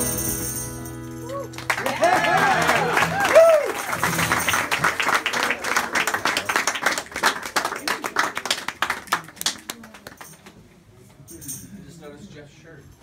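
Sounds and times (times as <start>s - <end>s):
small audience applauding: 1.2s - 10.6s.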